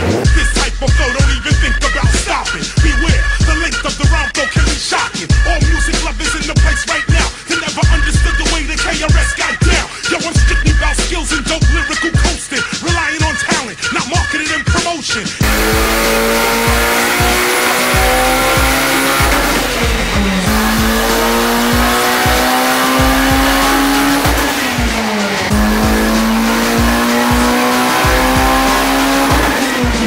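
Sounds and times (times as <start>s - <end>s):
background music: 0.0s - 30.0s
car engine revving on dyno: 15.4s - 30.0s.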